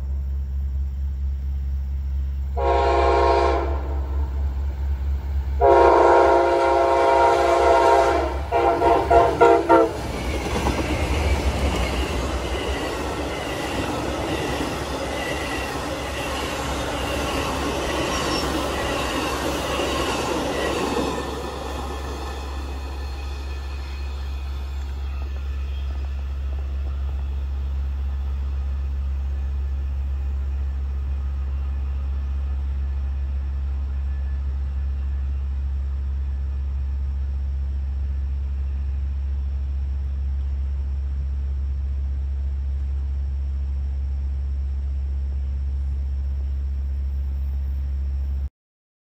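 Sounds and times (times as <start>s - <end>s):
steady low rumble: 0.0s - 2.6s, 3.6s - 7.4s, 18.6s - 48.5s
train rail noise: 0.0s - 48.0s.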